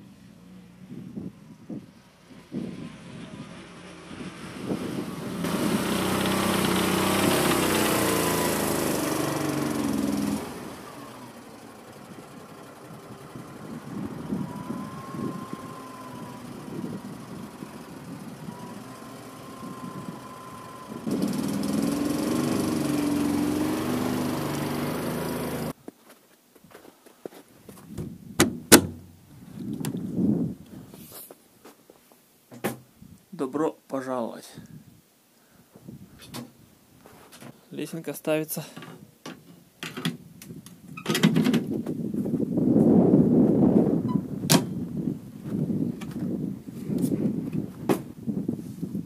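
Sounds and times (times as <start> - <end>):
small engine driving over snow: 0.0 - 25.8, 42.0 - 49.0.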